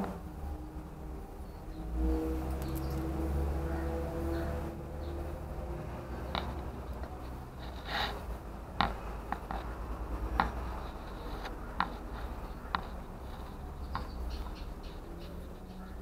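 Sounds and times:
scratchy scrapes in litter: 0:07.3 - 0:08.4.

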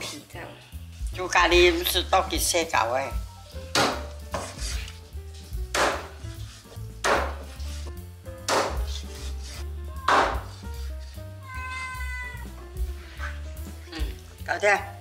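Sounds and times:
background music: 0:00.0 - 0:15.0
knife chopping on cutting board: 0:03.7 - 0:04.9, 0:05.7 - 0:07.6, 0:08.4 - 0:10.7.

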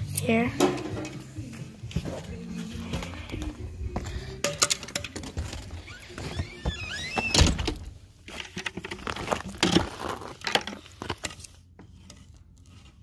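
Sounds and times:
knocks and clatter of handling: 0:04.4 - 0:06.8, 0:07.4 - 0:12.3.

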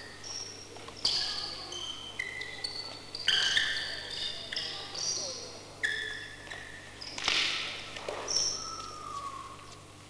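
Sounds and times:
sneakers squeaking on floor: 0:00.0 - 0:07.3.

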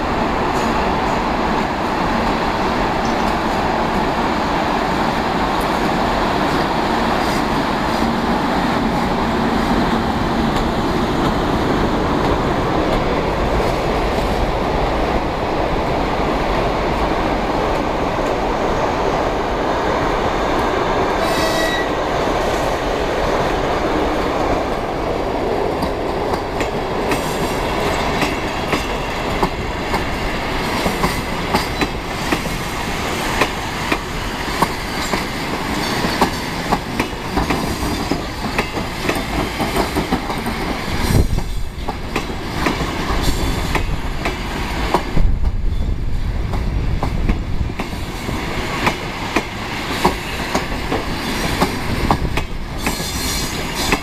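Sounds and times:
train wheels rumbling on rails: 0:00.0 - 0:54.0
high wheel squeal: 0:21.2 - 0:22.0.

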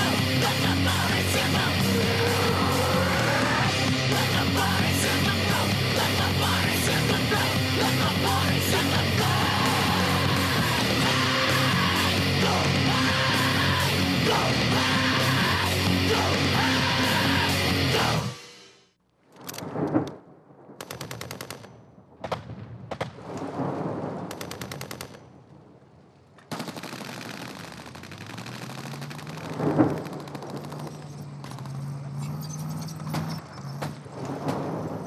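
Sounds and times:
low engine-like drone: 0:00.0 - 0:18.4, 0:28.1 - 0:33.9
automatic gunfire: 0:20.8 - 0:23.0, 0:24.3 - 0:25.3, 0:26.5 - 0:31.8.

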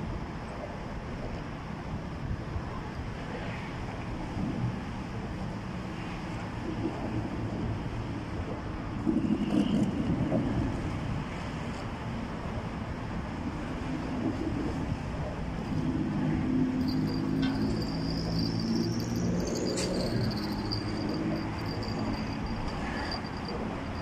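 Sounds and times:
highway traffic rumble: 0:00.0 - 0:24.0.

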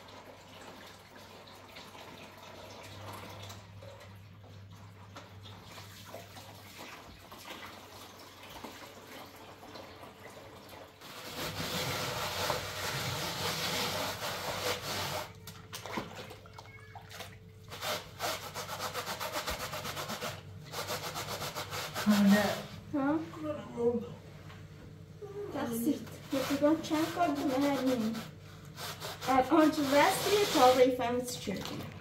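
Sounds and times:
sponge scrubbing a plastic bowl: 0:11.0 - 0:16.1, 0:17.2 - 0:23.2, 0:25.6 - 0:31.8
water sloshing: 0:15.3 - 0:17.5.

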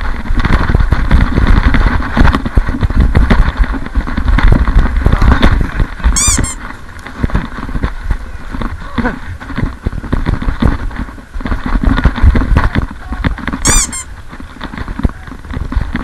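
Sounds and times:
brief high squeak: 0:06.2 - 0:06.6, 0:13.6 - 0:14.1.

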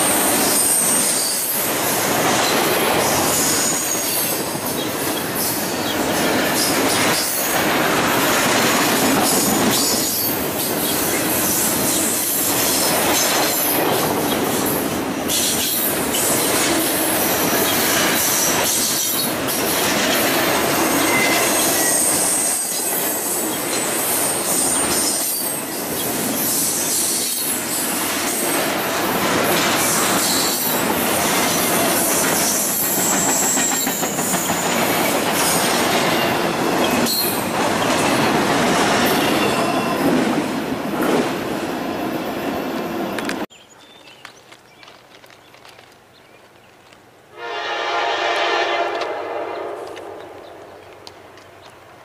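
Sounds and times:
high wheel squeals: 0:00.0 - 0:01.6, 0:20.8 - 0:23.0
train wheels clanking over rails: 0:00.0 - 0:40.4.

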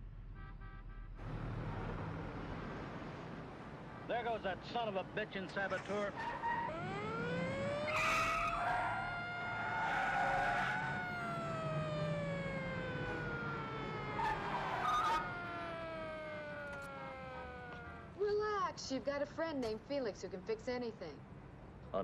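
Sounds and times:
tyres squealing: 0:05.7 - 0:06.9
police siren winding: 0:06.6 - 0:18.0.

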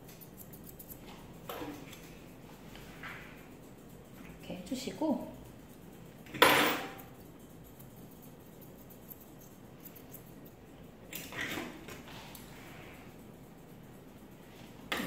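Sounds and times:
grooming scissors click: 0:00.0 - 0:02.1, 0:05.6 - 0:11.4.

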